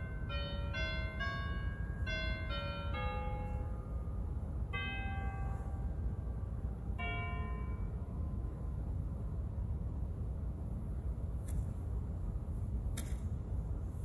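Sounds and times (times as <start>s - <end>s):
chime-like keyboard music: 0.0s - 6.2s, 7.0s - 8.4s.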